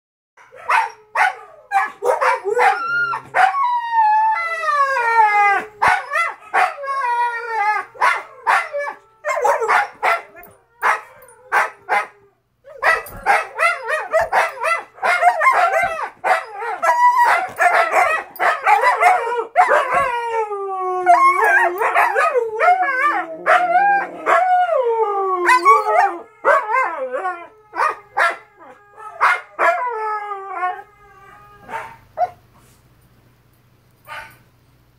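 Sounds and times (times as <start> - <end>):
dogs barking and yipping: 0.4 - 3.7, 5.6 - 20.2, 21.1 - 24.6, 25.5 - 29.9, 31.6 - 32.4.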